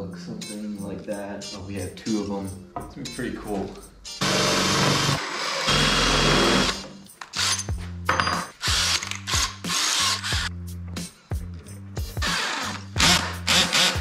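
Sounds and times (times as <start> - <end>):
cordless drill driving screws into wood: 4.2 - 7.7, 8.6 - 10.5, 12.2 - 14.0.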